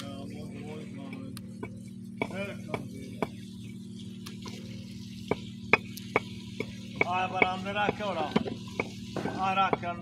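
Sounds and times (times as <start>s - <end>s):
steady low hum: 0.0s - 10.0s
bricks knocking and clinking: 7.0s - 9.9s.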